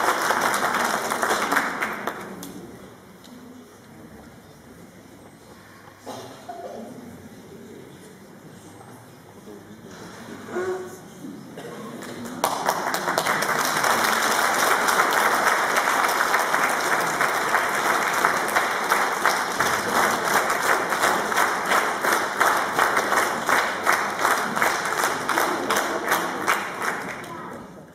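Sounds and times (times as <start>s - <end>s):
audience applauding: 0.0s - 2.4s, 12.0s - 27.5s.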